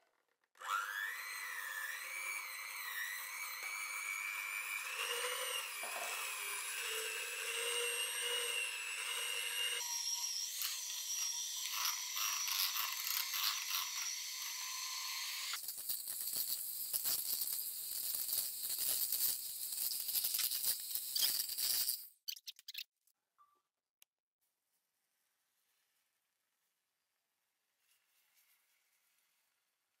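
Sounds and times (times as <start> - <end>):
electric hand mixer whirring: 0.6 - 15.6.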